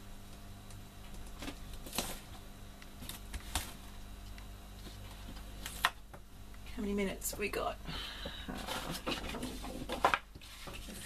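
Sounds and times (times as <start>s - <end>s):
low steady hum: 0.0s - 11.0s
paper rustling: 8.6s - 11.0s.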